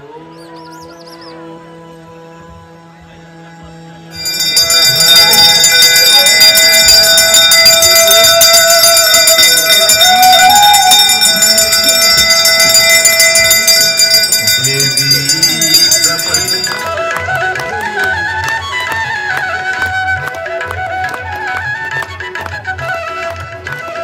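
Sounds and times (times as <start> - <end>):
conch shell blown: 3.7 - 14.6
hand bells ringing: 4.1 - 17.4.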